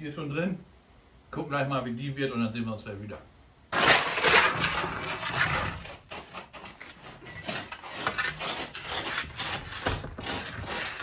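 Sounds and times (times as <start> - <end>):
metal tray scraping on brick: 3.7 - 11.0.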